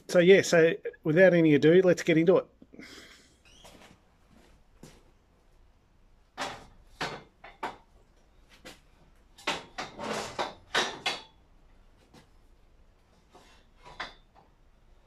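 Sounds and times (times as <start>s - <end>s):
metal clunks and scrapes: 9.4s - 11.4s, 13.2s - 14.5s.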